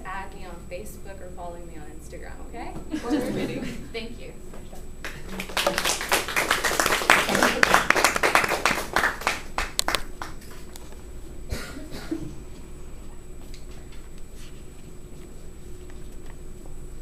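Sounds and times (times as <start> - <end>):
low steady hum: 0.0 - 17.0
audience applauding: 5.0 - 10.7.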